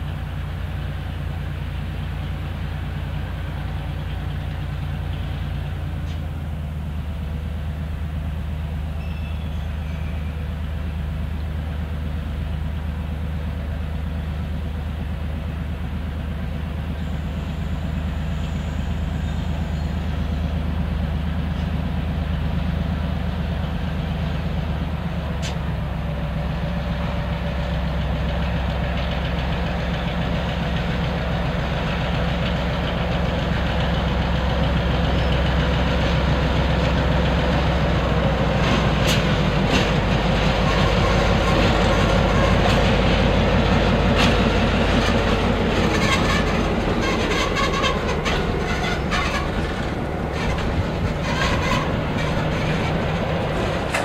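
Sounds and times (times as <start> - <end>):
diesel locomotive engine running: 0.0 - 54.0
train wheels clicking over rail joints: 23.3 - 54.0.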